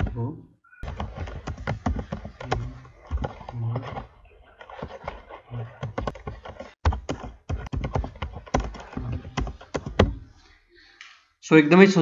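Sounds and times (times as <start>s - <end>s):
computer keyboard typing: 0.8s - 10.2s.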